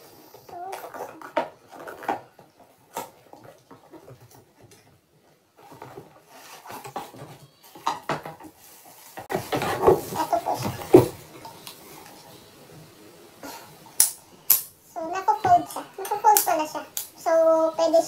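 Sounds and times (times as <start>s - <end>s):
rummaging in a cardboard box: 5.6s - 11.4s.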